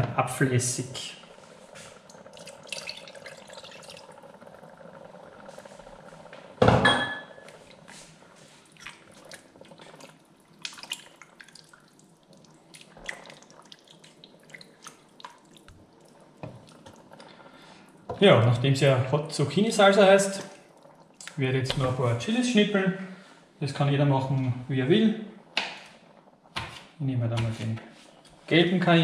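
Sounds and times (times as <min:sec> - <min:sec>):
liquid pouring into pot: 0:01.7 - 0:06.2, 0:07.4 - 0:22.2.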